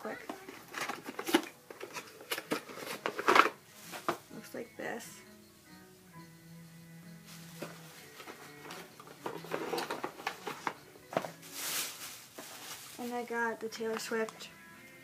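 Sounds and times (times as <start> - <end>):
quiet background music: 0.0 - 15.0
packaging rustling: 0.2 - 4.2, 7.3 - 13.3.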